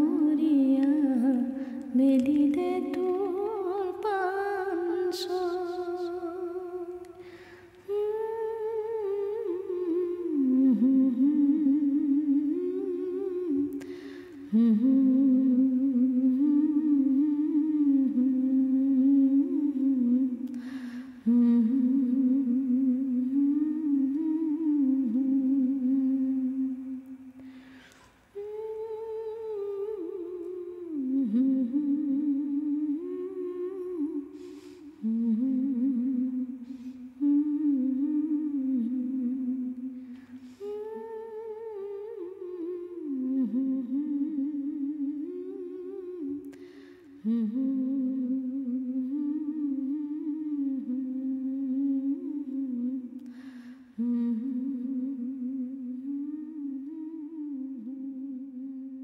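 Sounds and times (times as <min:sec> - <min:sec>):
person humming a slow melody: 0:00.0 - 0:59.0
person breathing: 0:07.1 - 0:07.8, 0:13.8 - 0:14.5, 0:20.5 - 0:21.2, 0:27.3 - 0:28.3, 0:34.3 - 0:35.0, 0:40.0 - 0:40.8, 0:46.5 - 0:47.2, 0:53.2 - 0:54.0.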